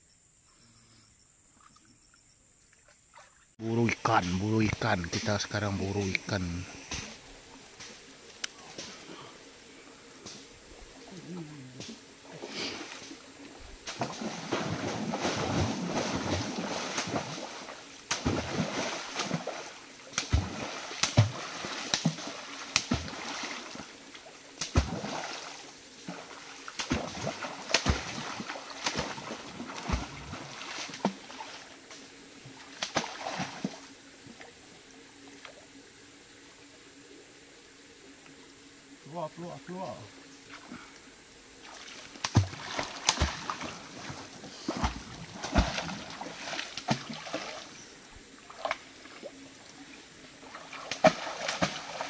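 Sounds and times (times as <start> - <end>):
water splashing in a stream: 10.1 - 35.7, 41.5 - 52.0
slaps on water surface: 20.1 - 23.2, 24.6 - 25.0, 26.8 - 28.2, 42.2 - 43.6, 50.9 - 51.8.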